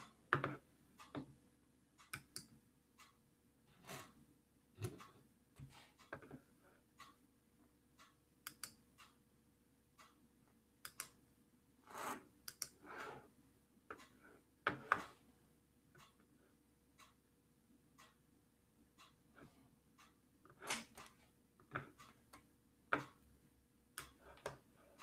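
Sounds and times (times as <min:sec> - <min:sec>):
keyboard and mouse clicking: 0:02.1 - 0:02.5, 0:08.4 - 0:08.8, 0:12.5 - 0:12.8.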